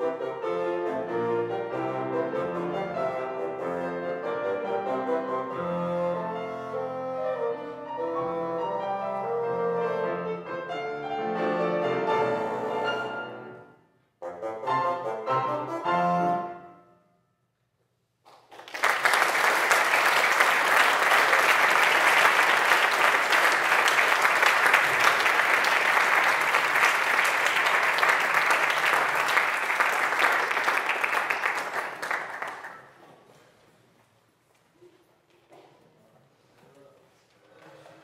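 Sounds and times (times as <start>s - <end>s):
audience applauding: 18.3s - 33.0s.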